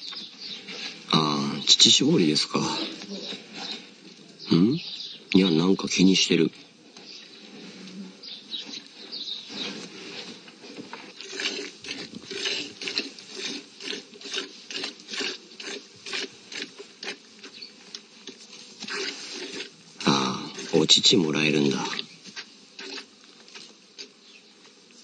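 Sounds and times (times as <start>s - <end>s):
milk squirting into plastic bucket: 18.8s - 19.7s.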